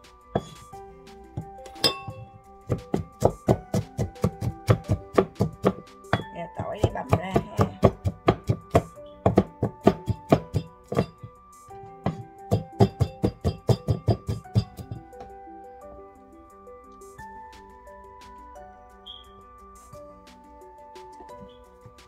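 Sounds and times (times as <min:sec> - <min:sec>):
background music: 0:00.0 - 0:22.0
cleaver chopping on wooden board: 0:02.7 - 0:11.2, 0:12.1 - 0:15.0.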